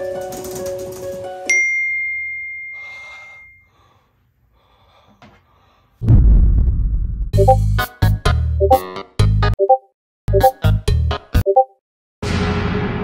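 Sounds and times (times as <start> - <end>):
music: 0.0 - 1.5, 7.4 - 12.8
bright ding: 1.5 - 3.8
loud deep boom: 6.0 - 7.4.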